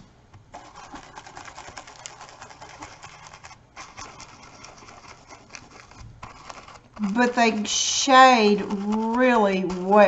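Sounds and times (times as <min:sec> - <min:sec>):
stencil brush tapping and brushing: 0:00.3 - 0:10.0.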